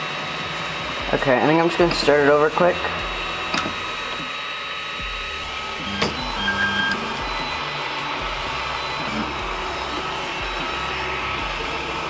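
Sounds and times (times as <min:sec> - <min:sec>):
stepper motors whining: 0:00.0 - 0:12.0.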